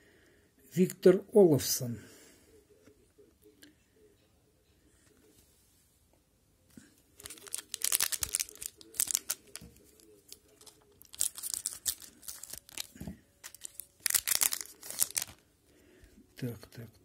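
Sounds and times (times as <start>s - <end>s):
card pack wrapper crinkling and tearing: 7.2s - 15.5s.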